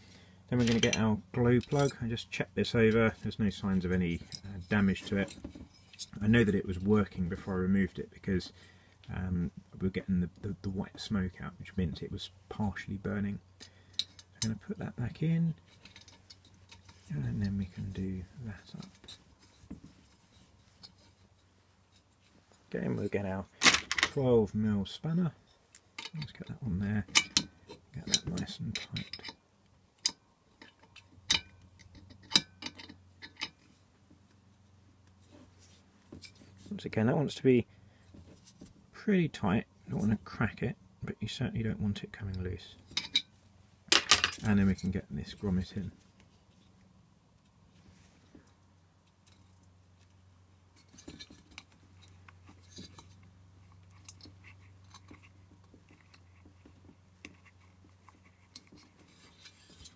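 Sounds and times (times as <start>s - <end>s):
rubbing and scratching: 15.2s - 29.4s, 50.7s - 59.9s.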